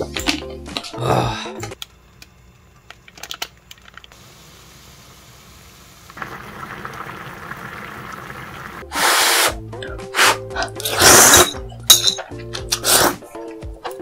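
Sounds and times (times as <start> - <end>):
water boiling in a pot: 4.1 - 8.9.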